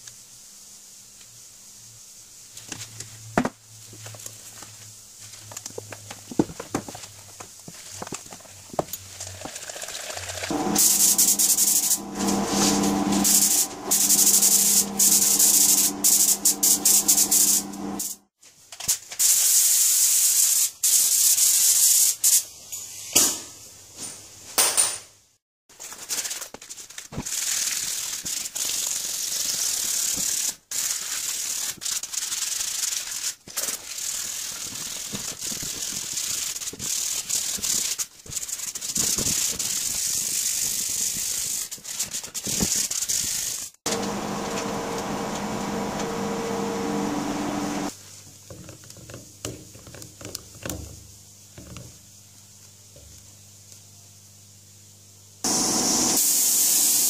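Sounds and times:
sandpaper rubbing on metal: 10.5 - 18.2, 27.2 - 43.8
spray gun hissing: 10.5 - 18.2, 43.9 - 47.9, 55.4 - 57.0
steady hum: 10.5 - 18.3, 43.9 - 47.9.

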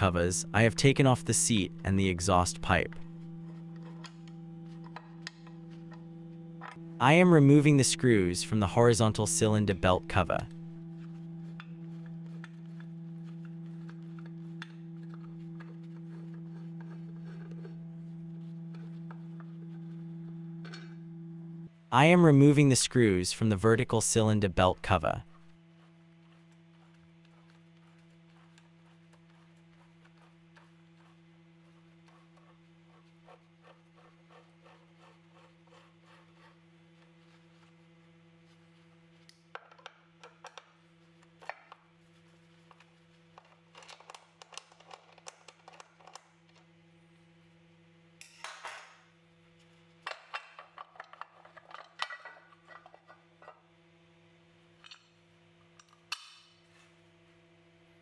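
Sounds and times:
steady low hum: 0.0 - 39.5.

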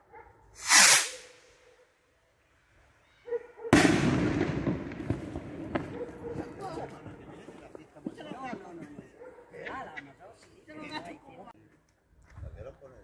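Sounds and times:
firework rocket whooshing: 0.6 - 1.5
firework bang: 3.7 - 8.2.

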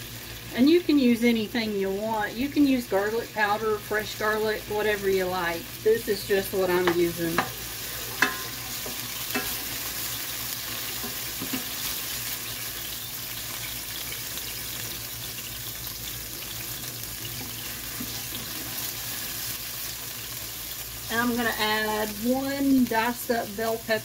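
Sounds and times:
garlic sizzling in oil: 0.0 - 24.0
spoon scraping and tapping pan: 6.8 - 7.6, 8.2 - 9.9, 10.9 - 12.0.

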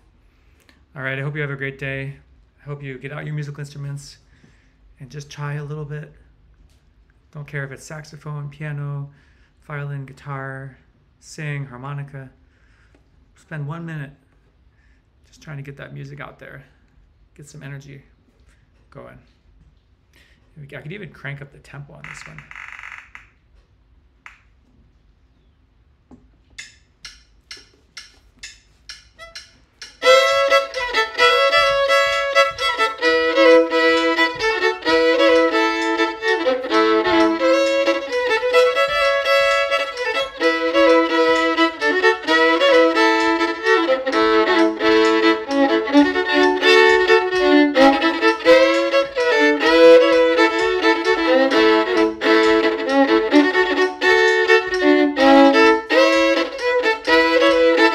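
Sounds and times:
fiddle playing a brisk tune: 29.1 - 57.9.

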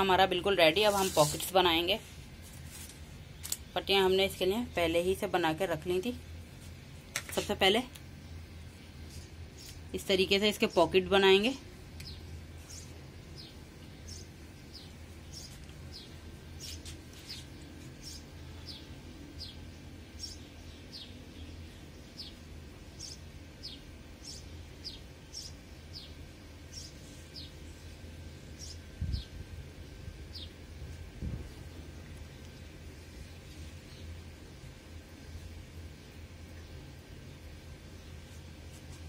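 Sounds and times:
steady low hum: 0.0 - 39.0
bird chirping: 12.0 - 22.4, 23.0 - 27.6.

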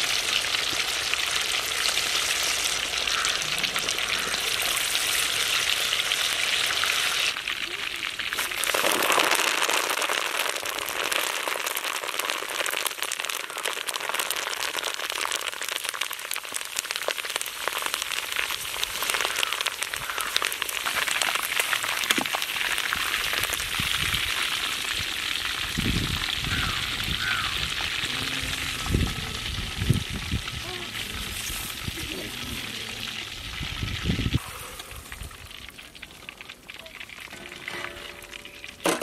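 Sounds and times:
leaves sizzling in hot oil: 0.0 - 39.0.

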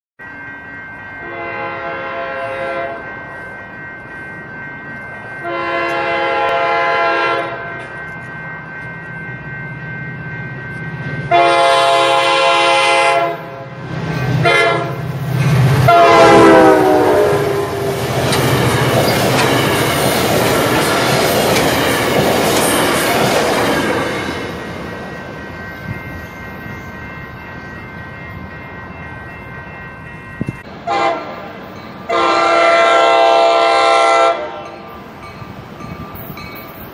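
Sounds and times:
diesel locomotive horn blasts: 1.2 - 3.0, 5.4 - 7.8, 11.3 - 13.8, 14.4 - 15.1, 15.7 - 18.1, 30.8 - 31.5, 32.1 - 34.9
train wheels clattering on rail joints: 17.8 - 26.0.

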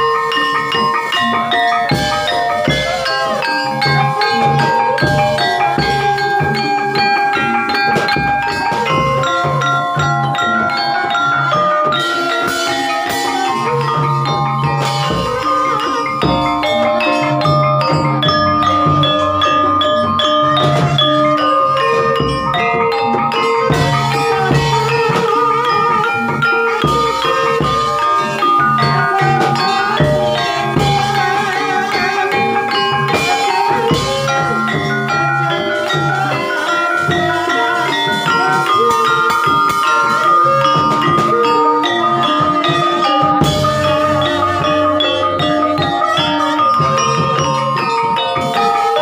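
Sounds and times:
gamelan mallet instruments: 0.0 - 49.0.

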